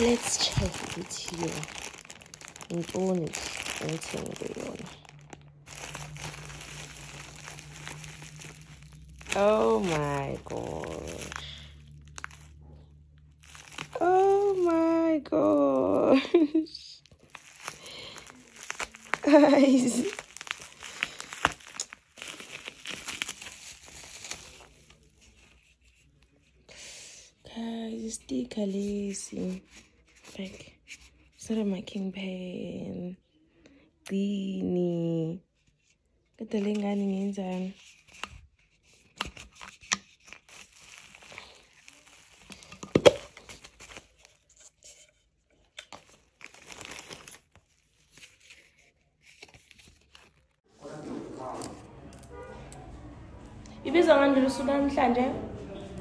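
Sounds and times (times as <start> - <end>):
gift packaging crinkling: 0.0 - 26.2, 36.4 - 52.5.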